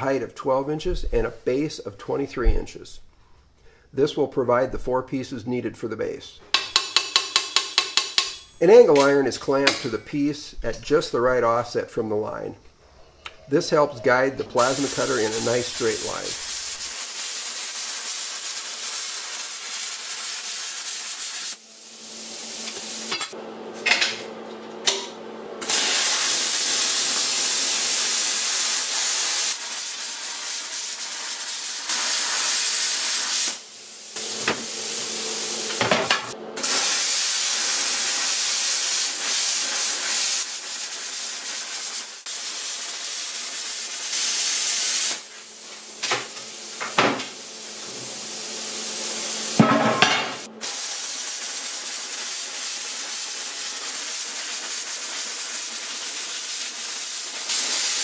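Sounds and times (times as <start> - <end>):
plasma cutter hissing: 14.5 - 23.4, 25.6 - 35.8, 36.6 - 45.7, 47.4 - 58.0.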